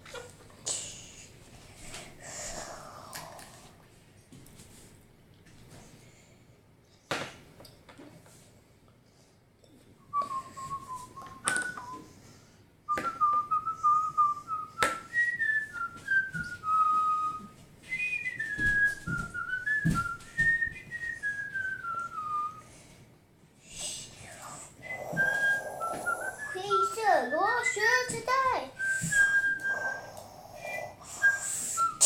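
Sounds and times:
child whistling a tune: 10.1 - 12.2, 12.9 - 22.7, 24.8 - 32.0.

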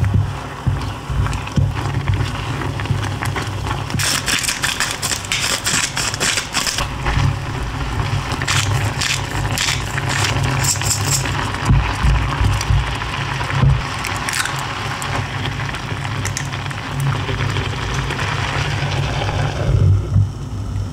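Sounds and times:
sauce bubbling in saucepan: 0.0 - 4.1, 4.9 - 20.6
salt grinder crunching: 3.7 - 7.6, 8.2 - 12.9, 13.8 - 15.2
pepper grinder grinding: 4.0 - 7.1, 8.3 - 11.6, 14.0 - 15.2.

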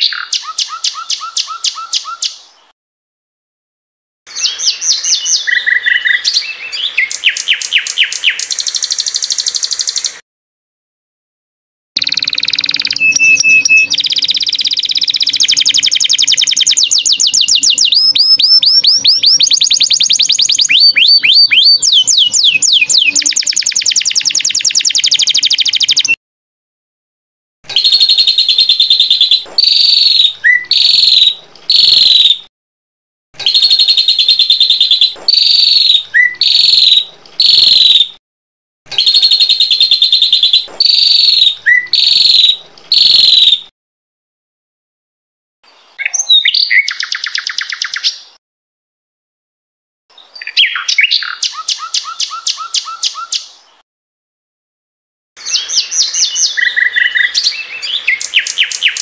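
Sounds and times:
songbirds singing trills: 0.0 - 2.6, 4.3 - 10.2, 12.0 - 26.2, 27.7 - 32.4, 33.4 - 38.2, 38.9 - 43.7, 45.8 - 48.4, 50.1 - 53.6, 55.4 - 59.0.

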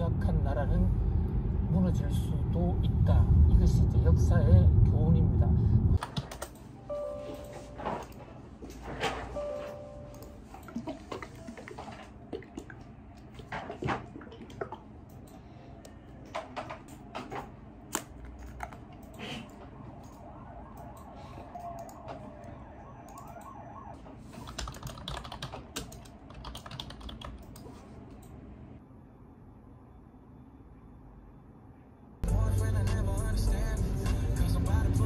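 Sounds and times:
low steady hum: 0.0 - 35.0
keyboard typing clicks: 6.0 - 6.6, 20.8 - 22.1, 23.1 - 23.6, 24.4 - 27.6.

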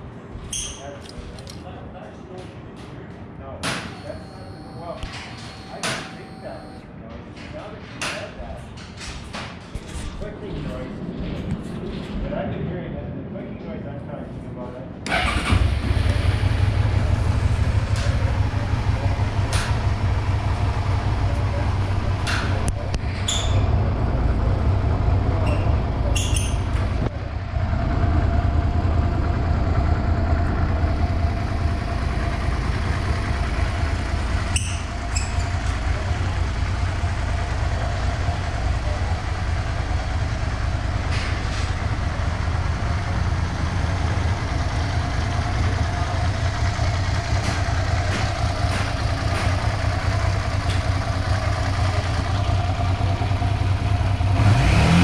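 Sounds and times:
motorcycle engine idling: 15.2 - 54.4.

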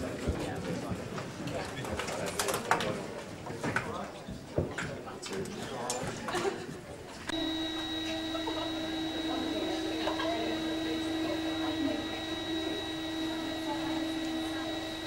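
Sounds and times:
faint murmur of crowd: 0.0 - 15.0
steady hum with high whine: 7.3 - 15.0.

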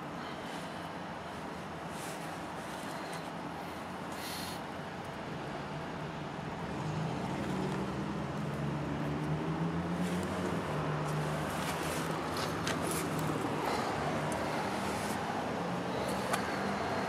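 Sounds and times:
road noise hiss: 0.0 - 17.0
vehicle engine hum: 0.0 - 17.0.

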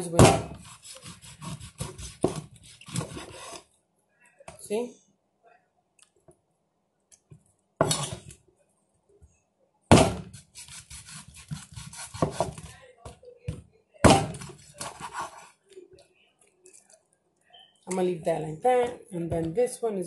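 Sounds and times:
knife sawing through joints: 0.6 - 3.6, 10.4 - 12.5
knife hacking on wooden board: 9.9 - 12.6.

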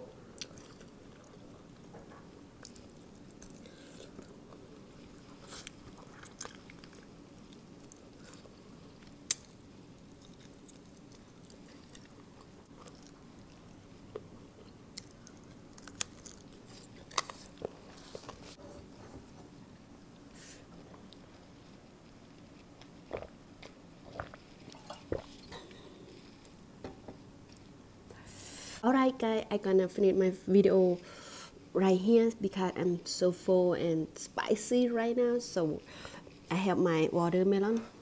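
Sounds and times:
chewing and biting food: 5.4 - 13.8
sharp clicks and crunches: 15.0 - 18.4.

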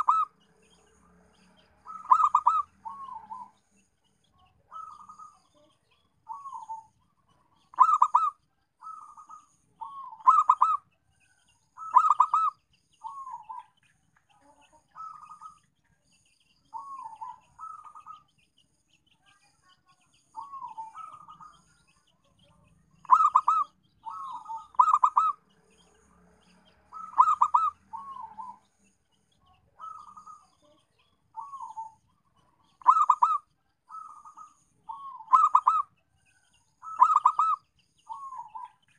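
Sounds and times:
dove cooing: 0.0 - 0.4, 1.8 - 3.6, 4.6 - 5.7, 6.3 - 10.8, 11.8 - 13.7, 15.0 - 15.6, 16.8 - 18.3, 20.4 - 21.6, 23.0 - 25.4, 26.9 - 28.7, 29.8 - 30.8, 31.4 - 35.9, 36.8 - 38.8.

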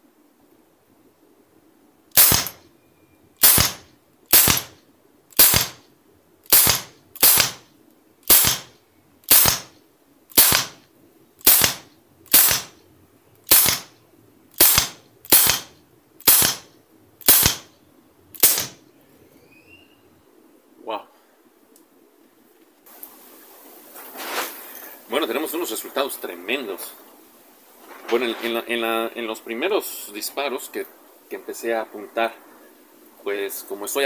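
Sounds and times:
air pistol shots popping: 2.1 - 2.6, 3.4 - 5.8, 6.5 - 10.8, 11.4 - 12.8, 13.5 - 14.0, 14.6 - 17.7, 18.3 - 18.8.

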